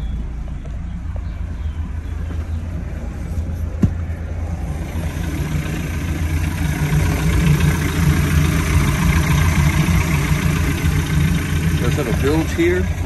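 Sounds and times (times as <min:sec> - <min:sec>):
boat engine idling: 0:04.6 - 0:13.0.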